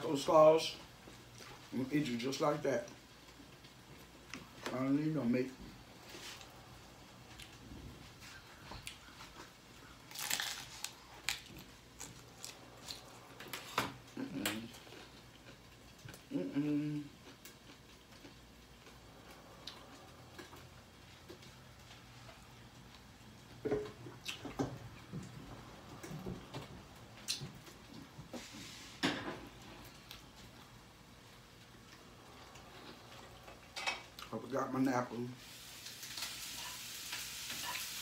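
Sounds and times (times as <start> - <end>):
person chewing food: 8.2 - 26.1, 29.6 - 34.3
taco shell crunching: 8.8 - 16.3.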